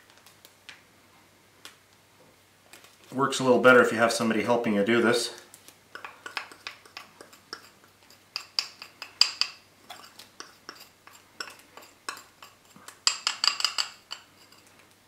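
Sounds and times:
utensil scraping glass bowl: 0:06.0 - 0:14.7.

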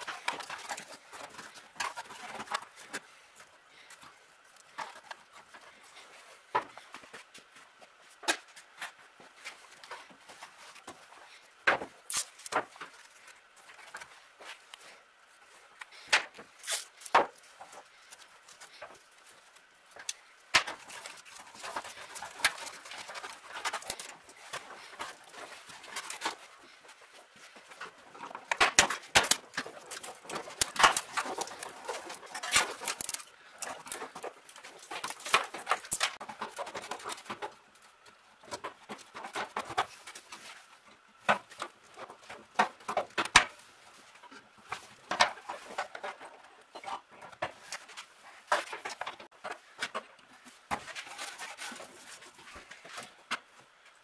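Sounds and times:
wiring harness clicks and rustles: 0:11.9 - 0:14.9, 0:15.8 - 0:54.0.

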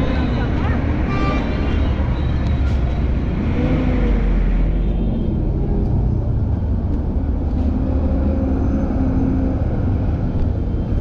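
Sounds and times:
buses and cars running: 0:00.0 - 0:11.0.

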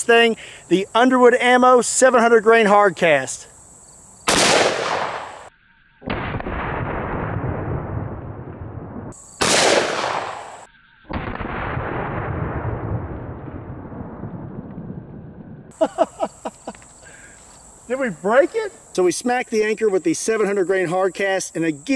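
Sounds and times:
revolver gunshot: 0:04.3 - 0:13.3
slowed-down gunshot: 0:04.3 - 0:15.6.

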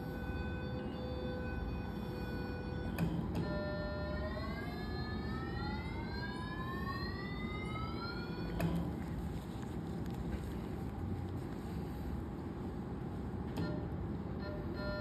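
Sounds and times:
machine steady tone: 0:00.0 - 0:09.7, 0:11.4 - 0:15.0.

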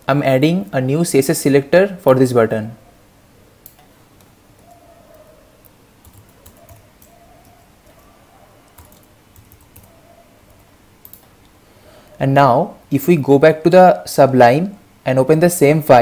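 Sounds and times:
faint keyboard typing: 0:03.6 - 0:12.2.

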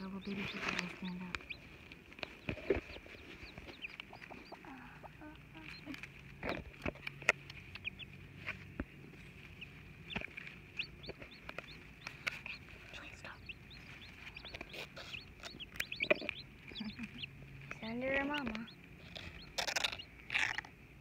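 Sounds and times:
chicks peeping: 0:00.0 - 0:20.9
hen clucking softly: 0:02.3 - 0:06.6, 0:09.6 - 0:17.3.

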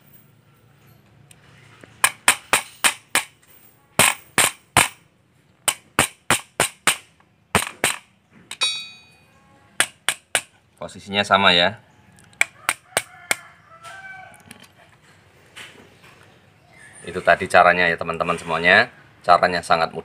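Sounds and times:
small hammer tapping metal: 0:07.6 - 0:09.2, 0:09.8 - 0:10.5
brief metallic ring: 0:08.6 - 0:09.3.

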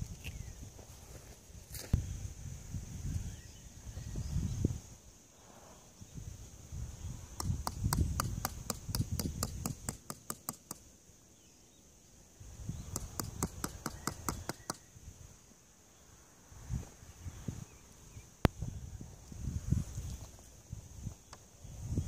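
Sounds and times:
wind rumble on microphone: 0:00.0 - 0:10.0, 0:12.4 - 0:15.4, 0:16.4 - 0:22.0.

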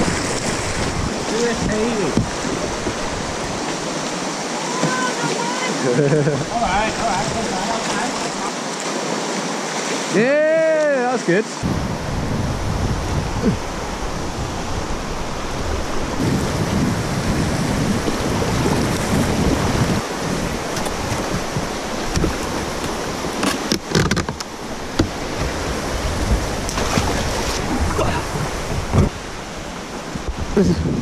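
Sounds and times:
wind on microphone: 0:00.0 - 0:04.0, 0:11.6 - 0:31.0
whitewater river rushing: 0:00.0 - 0:31.0
microphone handling noise: 0:16.1 - 0:29.3
sharp knocks: 0:20.8 - 0:25.6.

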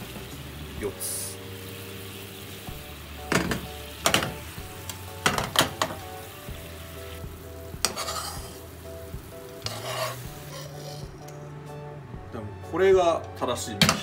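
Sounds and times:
sauce sizzling in frying pan: 0:00.0 - 0:11.4
spoon scraping pan: 0:07.8 - 0:08.6, 0:09.6 - 0:11.3.

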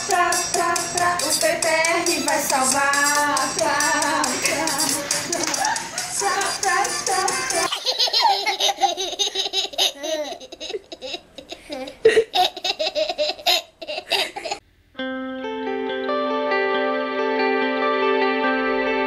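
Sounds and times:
toddlers giggling: 0:04.6 - 0:14.6
music with held guitar notes: 0:15.0 - 0:19.0.

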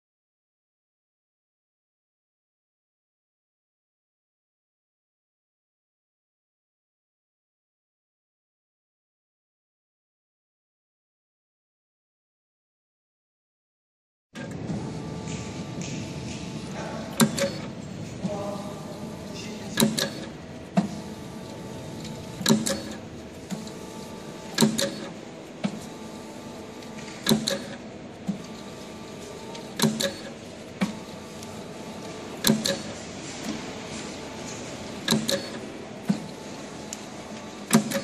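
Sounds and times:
sharp mechanical clacks: 0:14.4 - 0:17.8, 0:19.4 - 0:38.0
conveyor motor hum: 0:14.4 - 0:38.0.

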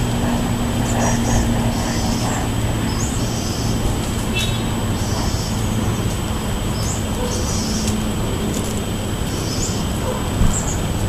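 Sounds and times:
distant road traffic rumble: 0:00.0 - 0:11.0
bird trilling: 0:00.8 - 0:06.1.

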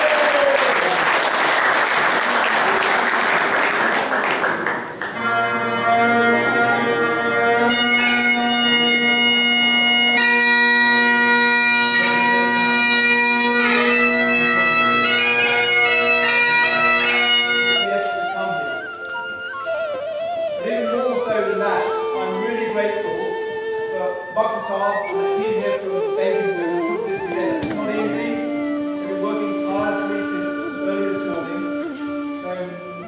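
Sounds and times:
audience applauding: 0:00.0 - 0:05.2
bagpipes playing a tune: 0:05.1 - 0:33.0.

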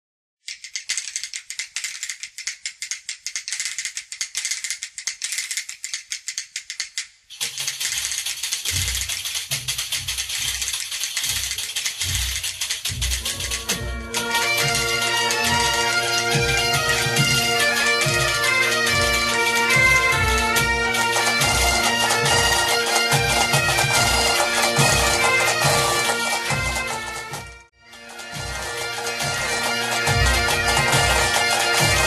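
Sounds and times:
jingling hand percussion: 0:00.4 - 0:32.0
low drum beat: 0:12.9 - 0:17.6
bagpipe: 0:13.0 - 0:32.0.

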